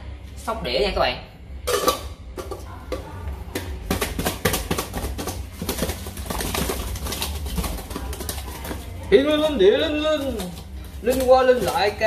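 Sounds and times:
fish fins rattling in metal pot: 0:03.8 - 0:12.0.

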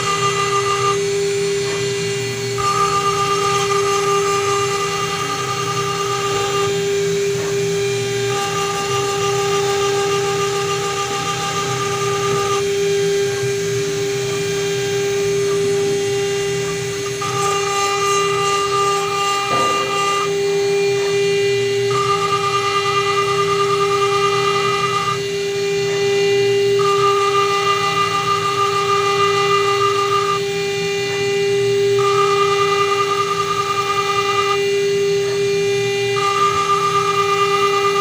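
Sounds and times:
router spindle whining: 0:00.0 - 0:38.0
higher tone: 0:17.2 - 0:20.6.

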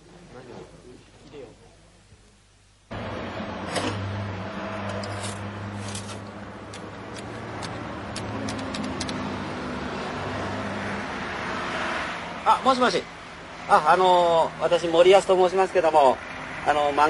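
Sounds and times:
road traffic with engine hum: 0:02.9 - 0:17.0.

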